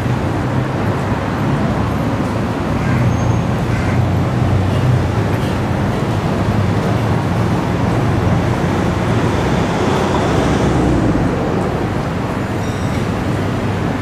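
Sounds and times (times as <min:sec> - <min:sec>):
road traffic: 0:00.0 - 0:14.0
vehicle passing by: 0:06.3 - 0:14.0.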